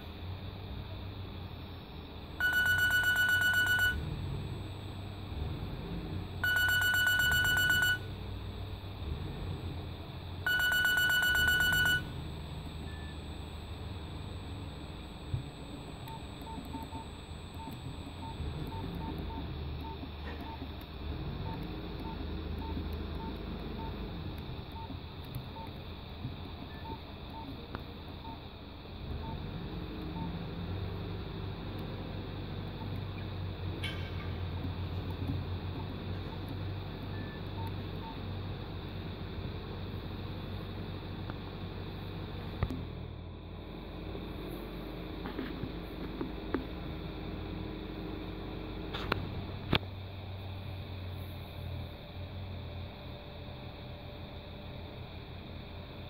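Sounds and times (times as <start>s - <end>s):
low steady hum: 0.0s - 56.0s
phone keypad beeps: 2.4s - 4.1s, 6.4s - 8.1s, 10.5s - 12.1s.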